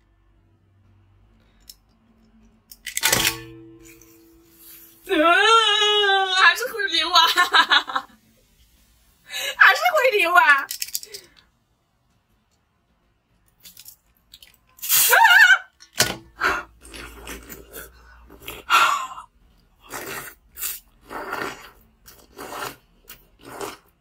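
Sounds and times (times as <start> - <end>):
crunching bites of slush: 19.8 - 24.0.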